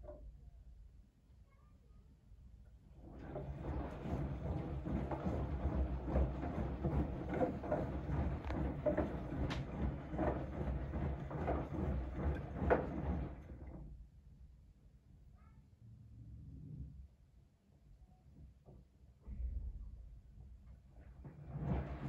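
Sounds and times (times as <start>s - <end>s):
washing machine motor hum: 2.9s - 14.0s, 21.0s - 22.0s
water sloshing and splashing: 3.0s - 13.8s.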